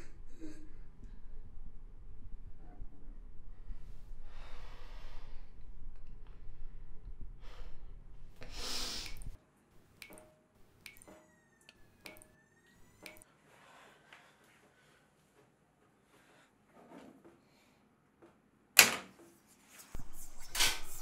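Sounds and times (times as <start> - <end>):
low hum: 0.0 - 9.4
woman breathing heavily: 4.1 - 5.6, 13.3 - 15.3.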